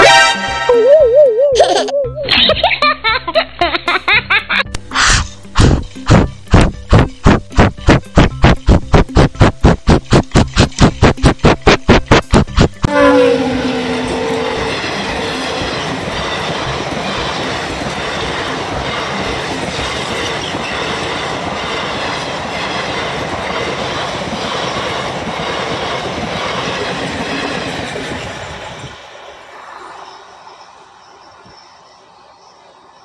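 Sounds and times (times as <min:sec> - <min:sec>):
train wheels clickety-clack: 0:05.4 - 0:12.9, 0:13.9 - 0:29.6
locomotive passing: 0:12.0 - 0:33.0.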